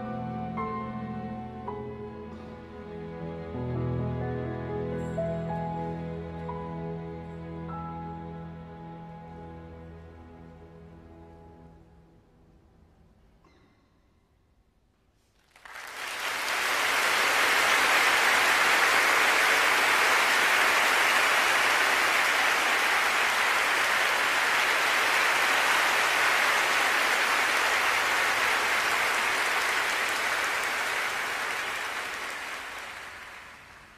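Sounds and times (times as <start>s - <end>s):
audience applauding: 15.4s - 33.9s.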